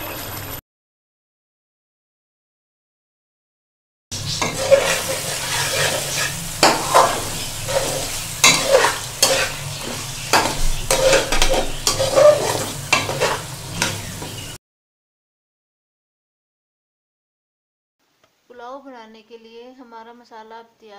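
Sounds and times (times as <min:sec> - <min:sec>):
chicken sizzling in oil: 0:04.1 - 0:14.6
spoon scraping metal pan: 0:04.2 - 0:14.6.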